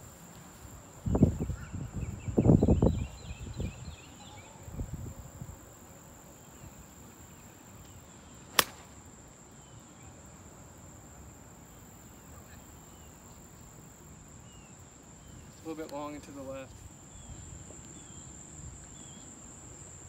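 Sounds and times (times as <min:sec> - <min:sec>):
golf club hitting ball: 0:08.5 - 0:08.9.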